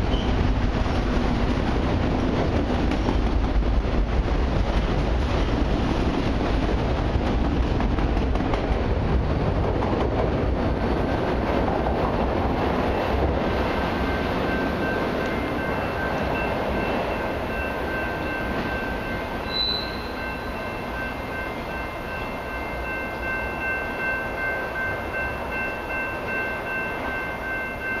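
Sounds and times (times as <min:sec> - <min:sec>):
freight train rumbling by: 0:00.0 - 0:28.0
high pulsing ring: 0:14.0 - 0:28.0
short high chirp: 0:19.4 - 0:20.5.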